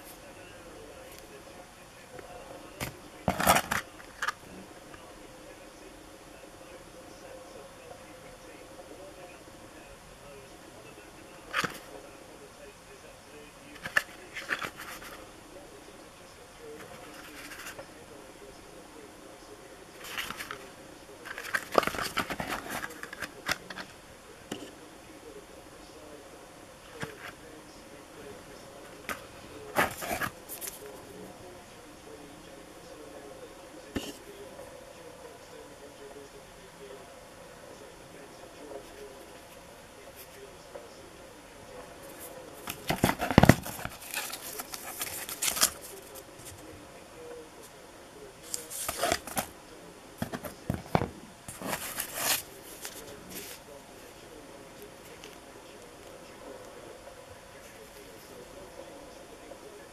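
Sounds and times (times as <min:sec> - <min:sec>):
cardboard tubes rustling: 0:20.0 - 0:20.6, 0:21.2 - 0:23.9, 0:28.9 - 0:31.0, 0:42.0 - 0:46.6, 0:48.4 - 0:49.6, 0:50.2 - 0:53.7.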